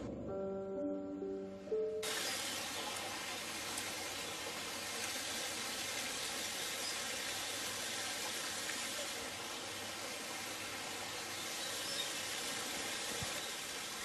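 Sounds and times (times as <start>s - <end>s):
waterfall splashing into pond: 2.0s - 14.0s.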